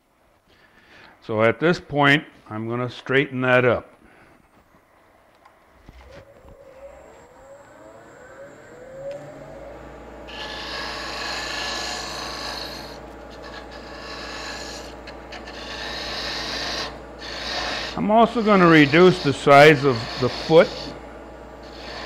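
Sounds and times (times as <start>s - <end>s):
wood lathe spinning: 5.8s - 22.0s
turning tool scraping wood: 10.3s - 21.0s, 21.6s - 22.0s.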